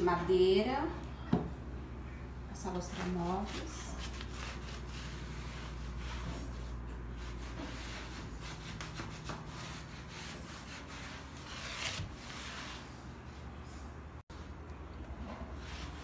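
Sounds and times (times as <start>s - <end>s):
cloth rubbing on wood: 2.9s - 13.0s.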